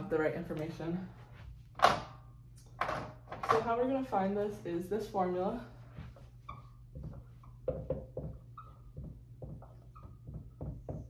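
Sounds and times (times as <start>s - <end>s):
marker squeaking on whiteboard: 6.3s - 11.0s.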